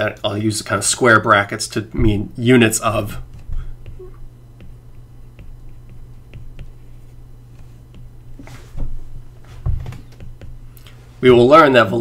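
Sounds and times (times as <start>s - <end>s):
low electrical hum: 0.0s - 12.0s
stylus tapping on a screen: 3.3s - 7.0s, 9.9s - 10.7s.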